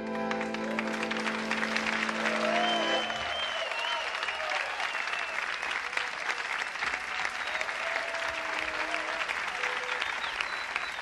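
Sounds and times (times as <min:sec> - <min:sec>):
audience applauding: 0:00.0 - 0:11.0
whistles: 0:02.5 - 0:05.6, 0:07.2 - 0:07.9, 0:09.6 - 0:11.0.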